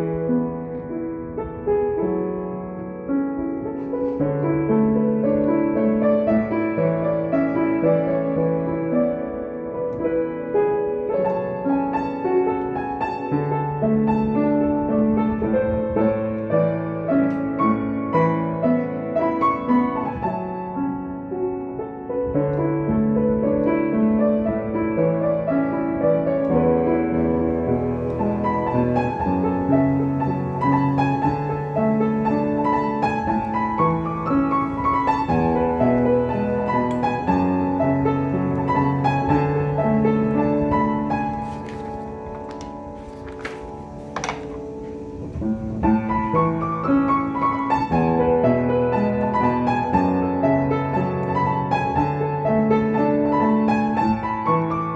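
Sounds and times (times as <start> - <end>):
solo piano piece: 0.0 - 54.9.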